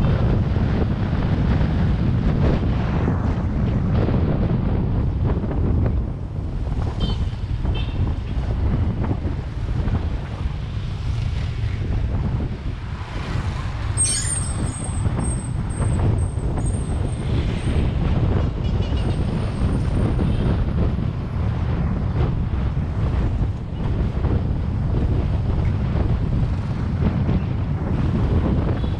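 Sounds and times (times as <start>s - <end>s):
vehicle road noise: 0.0s - 28.9s
wind rumble on microphone: 0.0s - 28.9s
thin high squeal: 14.0s - 15.5s.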